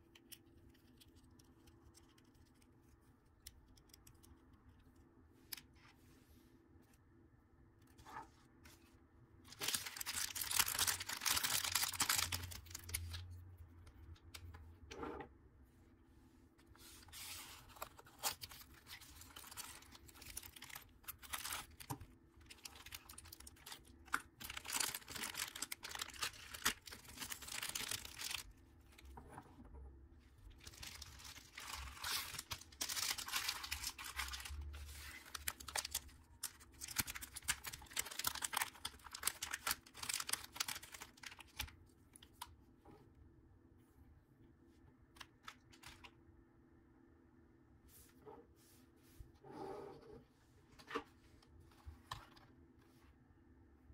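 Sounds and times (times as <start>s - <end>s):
plastic bags crinkling and tearing: 9.5s - 13.3s, 17.6s - 28.5s, 30.5s - 41.8s.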